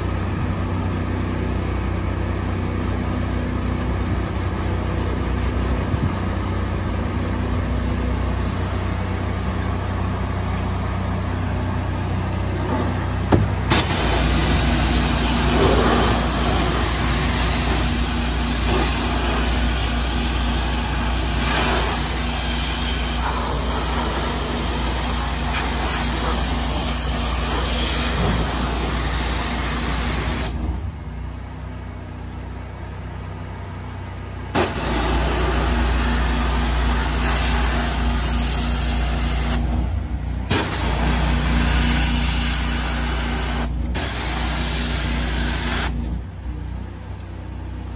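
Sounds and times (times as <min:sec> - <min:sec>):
engine running steadily: 0:00.0 - 0:47.9
pressure water spray hissing: 0:13.7 - 0:30.6, 0:34.6 - 0:39.6, 0:40.5 - 0:46.0.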